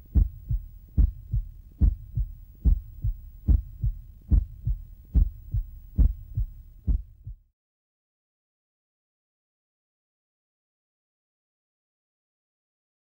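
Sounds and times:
heartbeat thumps: 0.0s - 7.5s.

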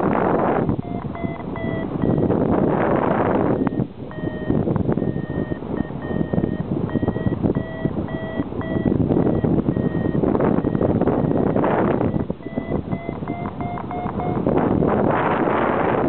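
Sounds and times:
variometer beeping: 0.0s - 16.0s
wind on microphone: 0.0s - 16.0s.

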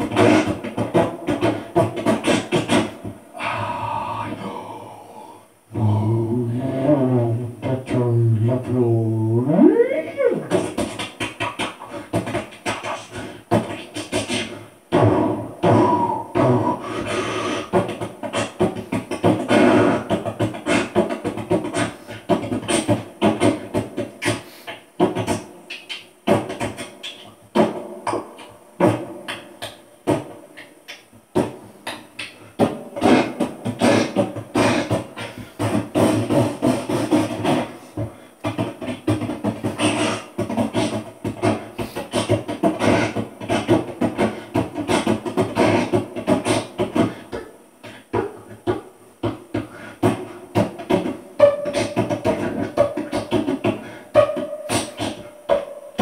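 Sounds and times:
man beatboxing: 0.0s - 56.0s.

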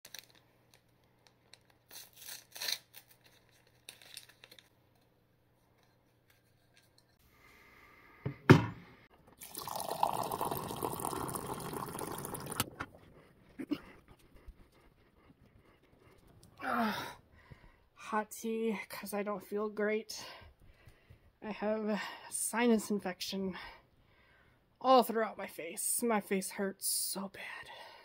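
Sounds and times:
water pouring into mug: 9.4s - 12.9s.

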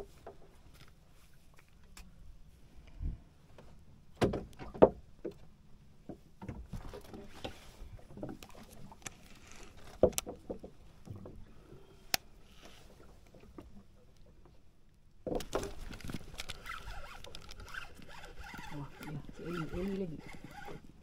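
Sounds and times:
knocks and bumps on a boat: 4.2s - 7.4s.

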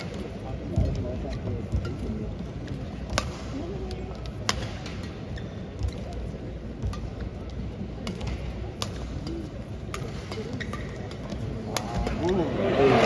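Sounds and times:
rackets striking shuttlecock: 0.0s - 12.4s
crowd hum: 11.3s - 13.0s.

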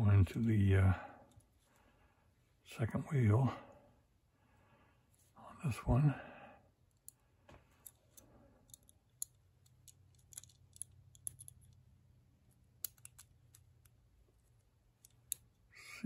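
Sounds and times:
padlock wheels clicking: 7.8s - 11.8s, 12.6s - 14.0s.

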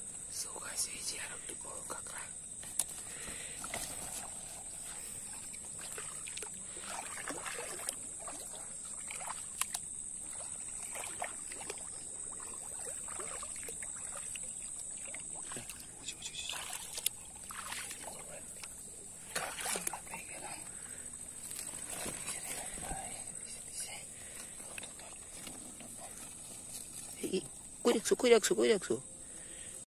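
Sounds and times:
high-pitched hiss: 0.0s - 15.2s
shallow water sloshing: 3.0s - 28.4s.

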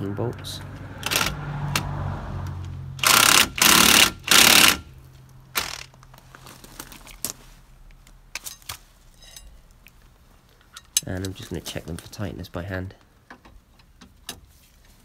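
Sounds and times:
impact wrench hammering: 3.0s - 4.9s.

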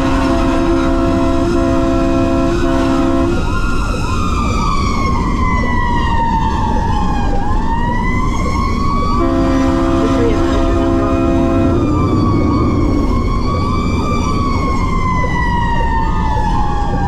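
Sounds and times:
fire engine air horns: 0.0s - 4.0s, 9.0s - 14.6s
wailing siren: 0.0s - 17.0s
yelping siren: 0.0s - 17.0s.

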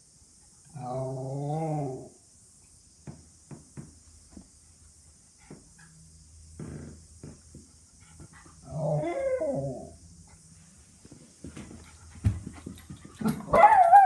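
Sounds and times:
dog barking excitedly: 13.2s - 14.0s.

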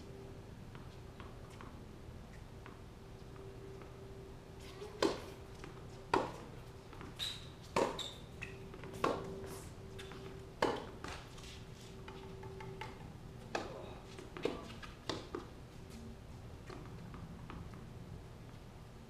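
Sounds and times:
faint hum: 0.0s - 19.0s
racquets striking tennis ball: 5.0s - 11.3s
shoe squeaks: 7.0s - 10.2s.

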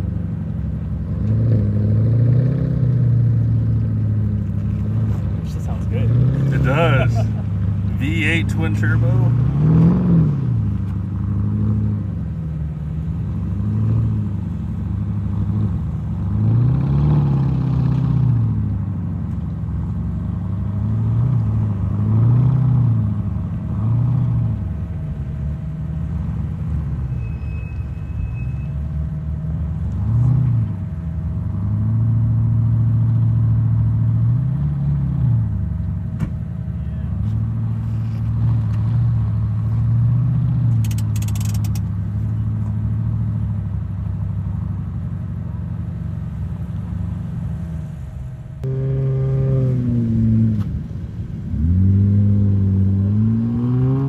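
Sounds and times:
suv engine revving: 1.0s - 18.9s, 45.7s - 54.0s.

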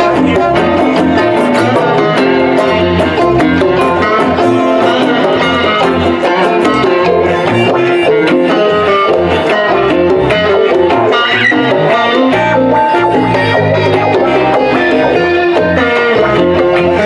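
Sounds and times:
conga: 0.0s - 17.0s
electric bass: 0.0s - 17.0s
guitars: 0.0s - 17.0s.

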